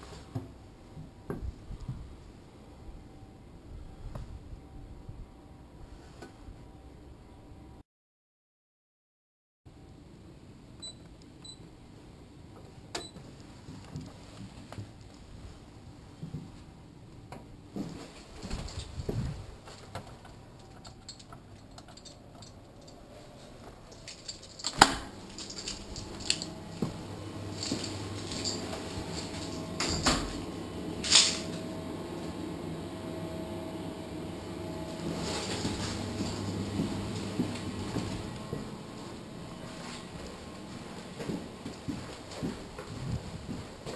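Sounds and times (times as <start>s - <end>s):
low hum of indoor machinery: 0.0s - 7.8s, 9.7s - 43.9s.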